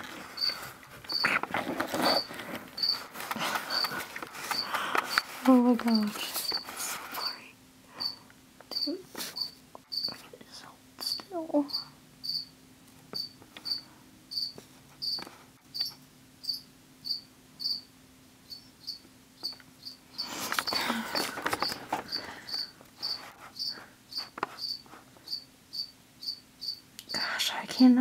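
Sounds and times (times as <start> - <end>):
close rustling: 0.0 - 7.3
cricket chirping: 0.4 - 1.4, 2.1 - 3.1, 8.0 - 10.2, 11.1 - 12.5, 13.2 - 27.2.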